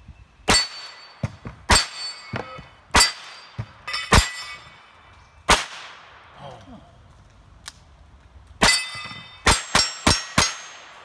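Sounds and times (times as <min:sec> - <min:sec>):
steel targets clanging: 0:00.5 - 0:05.1, 0:08.6 - 0:10.9
small metallic clanks: 0:00.8 - 0:04.9, 0:08.7 - 0:10.6.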